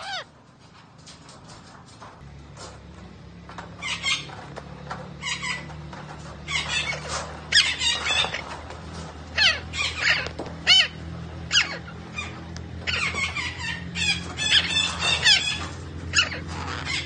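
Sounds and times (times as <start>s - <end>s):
parakeet high-pitched calls: 0.0s - 0.3s, 3.8s - 4.5s, 5.2s - 5.8s, 6.4s - 8.6s, 9.3s - 17.0s.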